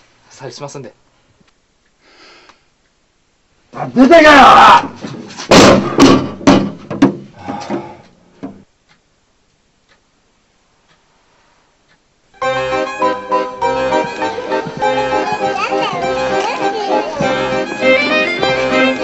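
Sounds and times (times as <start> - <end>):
knocking on wooden door: 5.5 - 7.3
piano music: 12.4 - 19.0.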